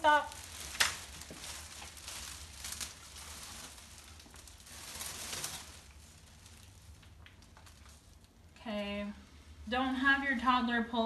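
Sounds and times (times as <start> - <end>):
plastic film rustling and crackling: 0.0 - 8.6
low steady hum: 0.0 - 11.0.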